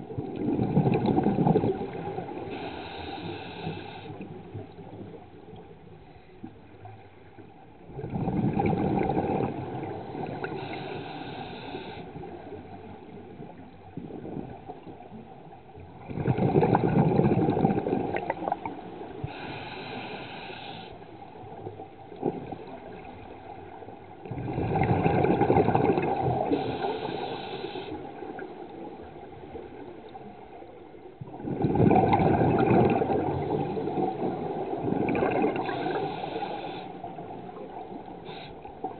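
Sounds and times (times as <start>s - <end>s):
exhaled air bubbling: 0.0s - 5.2s, 7.9s - 29.9s, 31.2s - 38.9s
regulator inhale hiss: 2.4s - 4.3s, 10.5s - 12.4s, 19.2s - 21.1s, 26.4s - 28.1s, 35.6s - 37.2s, 38.2s - 38.8s.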